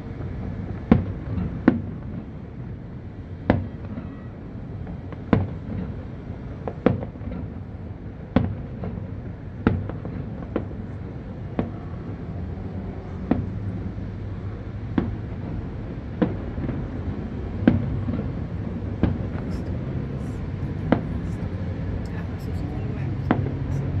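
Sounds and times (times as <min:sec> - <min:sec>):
low city hum: 0:00.0 - 0:24.0
fireworks bursting: 0:17.7 - 0:23.4.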